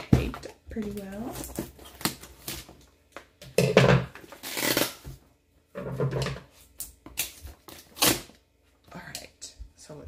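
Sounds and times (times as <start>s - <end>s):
packing tape tearing: 4.2s - 5.2s, 7.2s - 8.4s.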